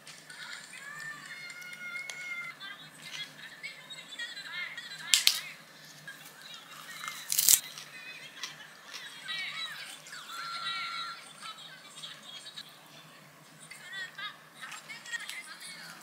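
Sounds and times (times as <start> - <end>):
lettuce wrap crunching: 6.9 - 7.7.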